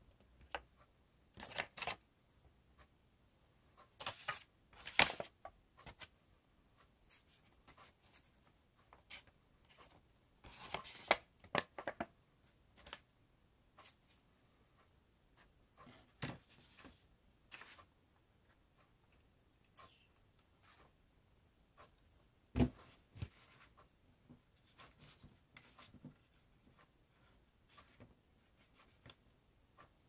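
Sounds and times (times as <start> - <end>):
paper rustling and crinkling: 4.0 - 6.0.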